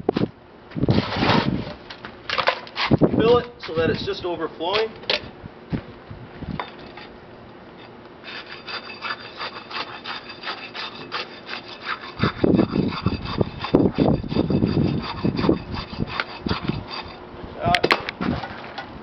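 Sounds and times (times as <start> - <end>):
steel rod scraping in concrete: 0.9 - 3.0, 7.8 - 17.2.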